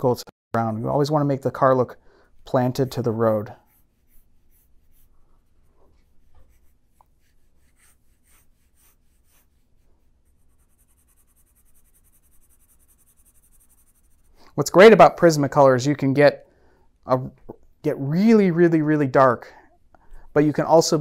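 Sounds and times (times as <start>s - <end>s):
pencil scratching on paper: 2.4s - 14.4s.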